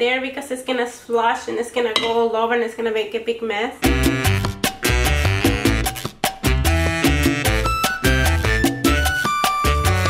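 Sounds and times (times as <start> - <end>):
music with quick beat and bass: 3.9 - 10.0.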